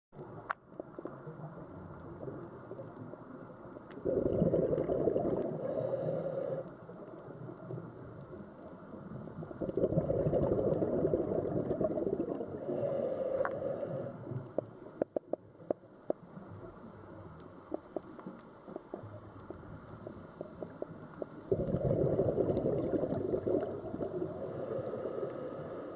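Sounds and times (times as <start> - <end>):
exhaled bubbles underwater: 3.9 - 6.6, 9.0 - 13.0, 21.3 - 25.9
faint clicks: 14.2 - 21.5.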